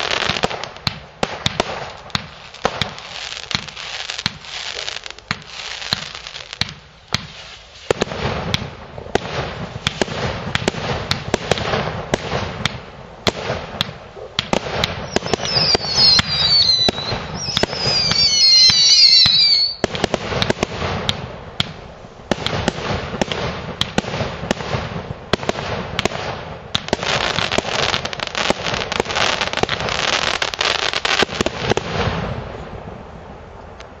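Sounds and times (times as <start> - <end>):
fireworks launch thumps and bursts: 0.0 - 30.2
shrill falling whistles: 15.1 - 19.8.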